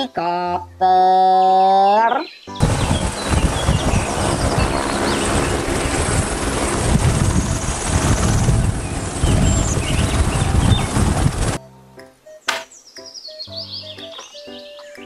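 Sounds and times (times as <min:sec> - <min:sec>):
helicopter turbine and rotor: 0:02.6 - 0:11.6.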